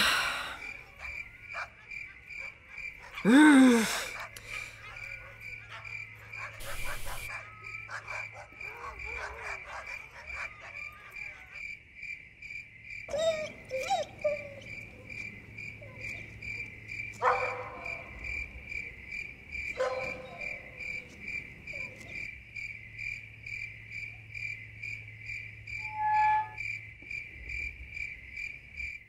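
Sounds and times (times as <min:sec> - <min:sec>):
crickets chirping: 0:00.0 - 0:29.0
squeak: 0:25.8 - 0:26.6.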